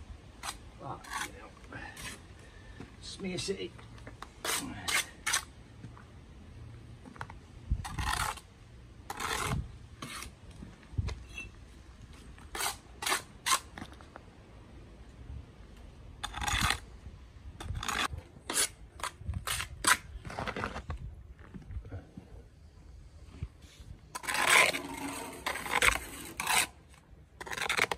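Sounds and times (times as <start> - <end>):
trowel scraping mortar: 0.4 - 2.3, 4.2 - 5.5, 7.8 - 10.4, 12.4 - 13.8, 16.2 - 16.8, 17.6 - 20.9, 24.1 - 27.9.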